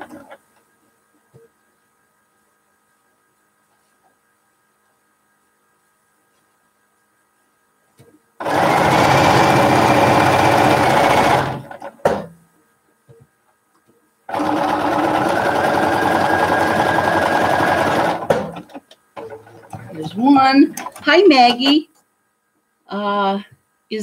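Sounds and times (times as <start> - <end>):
sewing machine stitching: 8.4 - 12.0, 14.3 - 20.0.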